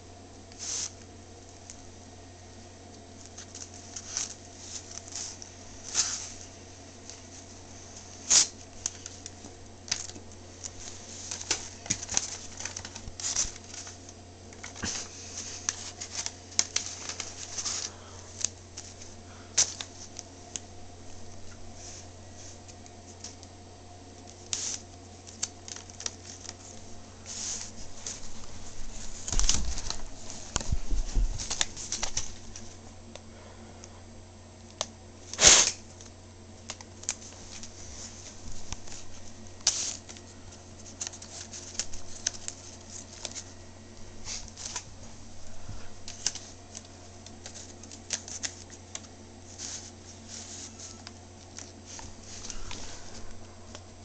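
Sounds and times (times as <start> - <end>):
paper rustling and crinkling: 3.1 - 23.5, 24.2 - 32.8, 35.2 - 54.0.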